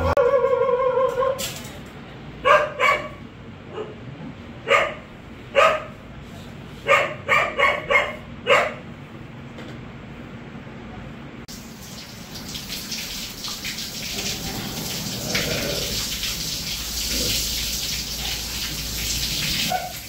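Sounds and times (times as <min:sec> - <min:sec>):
dog yelping barks: 0:00.0 - 0:01.4, 0:02.4 - 0:04.0, 0:04.7 - 0:05.9, 0:06.9 - 0:08.8, 0:19.7 - 0:20.0.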